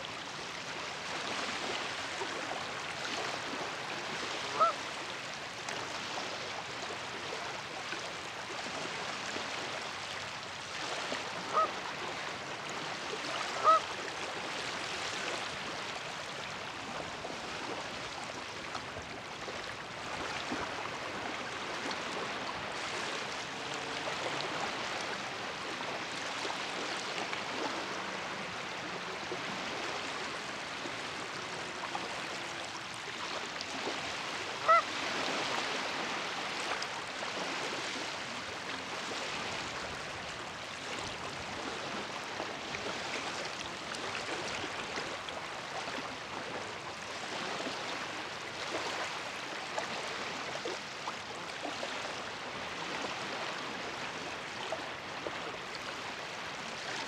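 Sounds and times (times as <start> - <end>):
lake waves lapping on shore: 0.0 - 57.0
goose honk: 4.5 - 4.8, 11.5 - 11.7, 13.6 - 13.8, 34.6 - 34.9.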